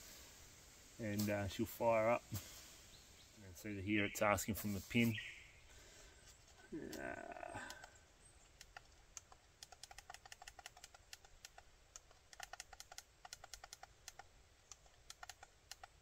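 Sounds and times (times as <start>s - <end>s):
camera buttons clicking: 8.6s - 15.9s.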